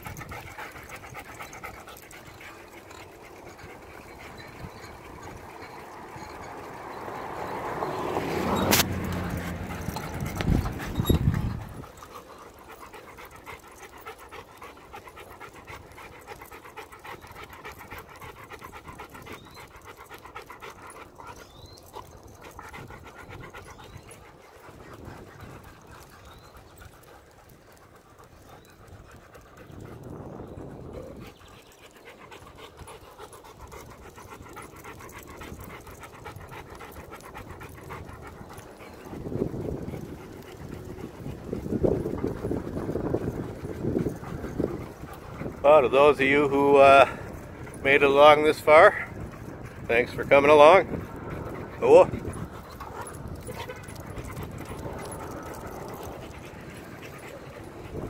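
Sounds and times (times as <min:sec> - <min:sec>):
dog panting: 0:00.0 - 0:58.0
vehicle engine rumbling: 0:02.4 - 0:12.9, 0:38.0 - 0:58.0.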